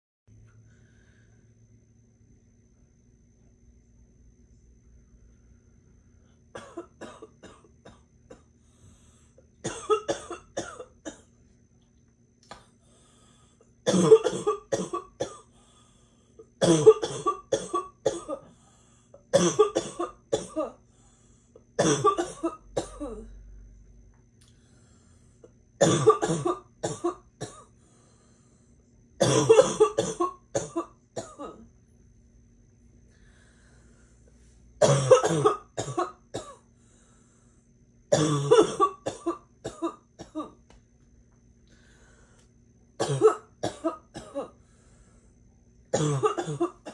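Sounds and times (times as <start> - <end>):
girl's barking cough: 9.6 - 11.2, 13.9 - 15.5, 16.6 - 18.4, 19.3 - 20.8, 21.8 - 23.3, 25.8 - 27.7, 29.2 - 31.6, 34.8 - 36.6, 38.1 - 40.6, 43.0 - 44.5, 46.0 - 46.9.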